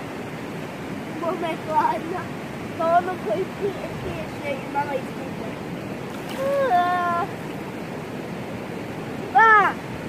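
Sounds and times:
flowing lake water: 0:00.0 - 0:10.0
child calling: 0:06.4 - 0:07.3, 0:09.3 - 0:09.8.

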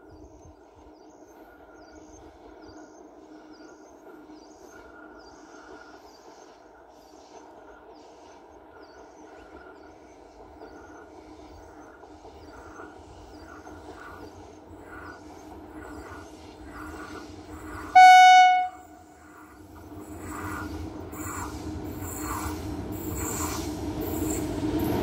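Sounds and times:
train low rumble: 0:00.0 - 0:25.0
train horn blast: 0:17.9 - 0:19.2.

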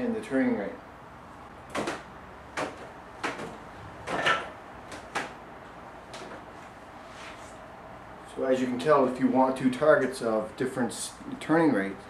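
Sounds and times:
dull knocks of wood and plastic: 0:01.7 - 0:05.4.

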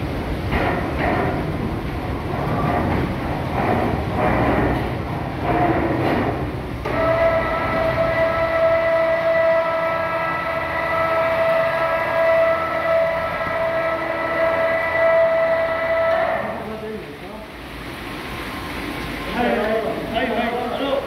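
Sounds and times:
electric crane motor whine: 0:06.8 - 0:16.6.

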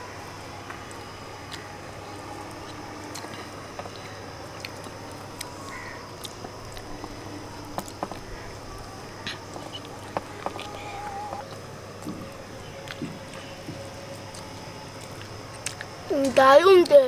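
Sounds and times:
faint calls: 0:00.0 - 0:16.4
background hum: 0:00.0 - 0:17.0
chewing clicks and smacks: 0:02.5 - 0:07.2, 0:12.8 - 0:13.5, 0:14.2 - 0:17.0.

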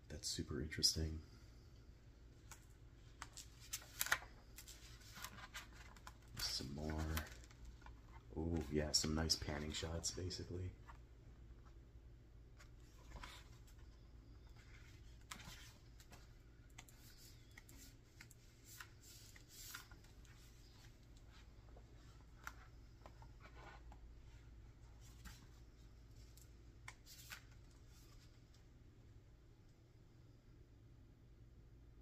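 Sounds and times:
low steady hum: 0:00.0 - 0:32.0
pages of a book turning: 0:02.5 - 0:11.0, 0:12.6 - 0:24.0, 0:26.1 - 0:28.4.

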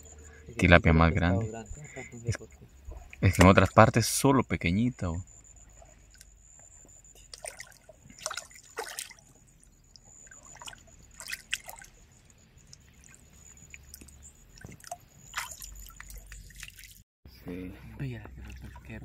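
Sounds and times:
stream water trickling: 0:00.0 - 0:17.0, 0:18.0 - 0:19.0
small sharp splashes: 0:07.2 - 0:17.0.

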